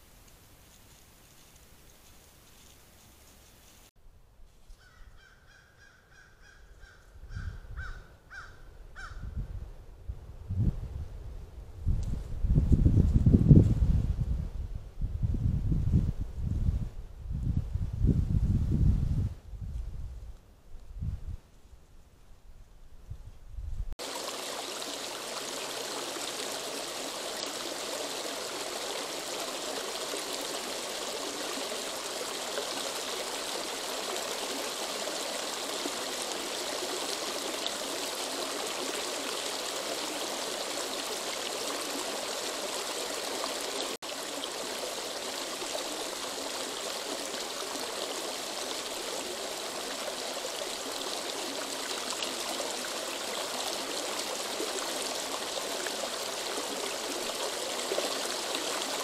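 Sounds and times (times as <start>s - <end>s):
creek trickling over stones: 24.0s - 59.0s.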